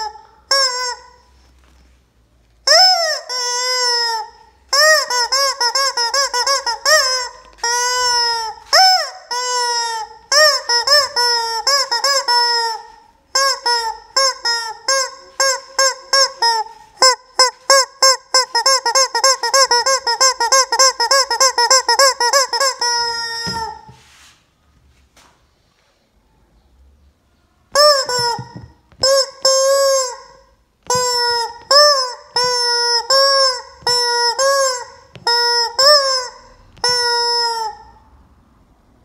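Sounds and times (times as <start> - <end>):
rubber chicken toy squawking: 0.0 - 1.5, 2.6 - 24.0, 27.7 - 38.1.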